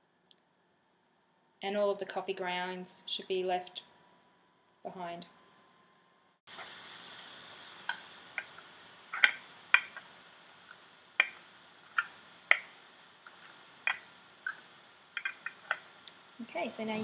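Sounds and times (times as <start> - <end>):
steady hiss: 6.4 - 17.0
plastic moulds clicking: 15.2 - 16.2.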